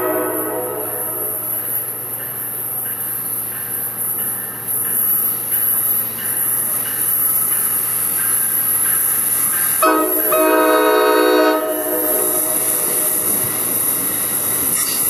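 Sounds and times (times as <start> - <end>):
train chime air horn: 0.0 - 2.4, 9.8 - 14.0
oncoming train noise: 0.0 - 15.0.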